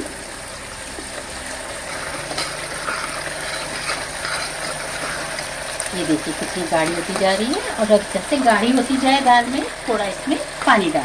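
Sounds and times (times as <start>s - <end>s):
frying hiss: 0.0s - 11.0s
low hum: 0.0s - 11.0s
ladle scraping metal pot: 1.8s - 7.7s.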